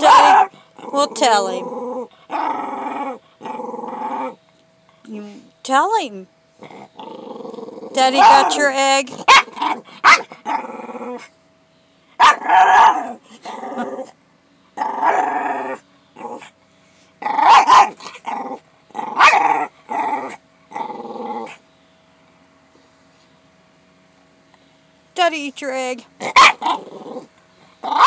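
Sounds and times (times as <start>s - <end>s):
dog vocalising: 0.0s - 4.4s, 6.6s - 11.3s, 17.2s - 21.6s, 26.2s - 28.0s.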